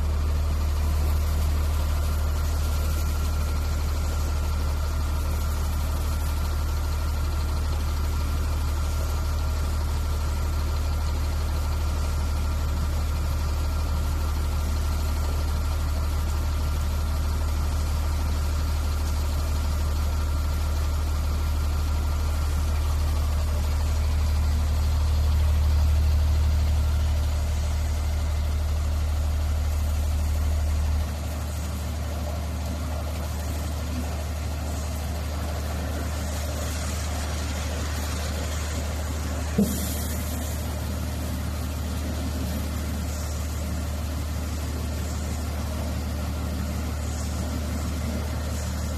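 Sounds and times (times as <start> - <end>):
low mechanical drone: 22.4 - 48.9.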